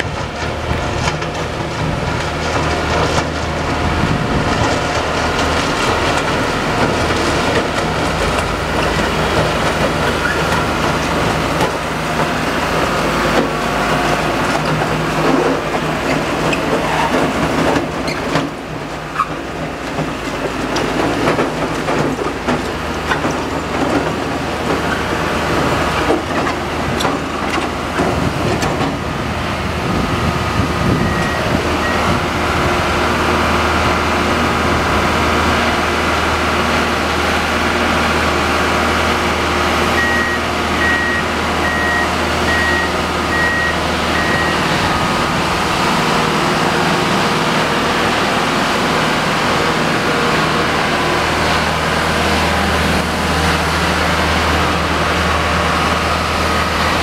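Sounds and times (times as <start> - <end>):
diesel engine running: 0.0 - 57.0
warning beeper beeps: 31.0 - 32.2, 40.0 - 44.7.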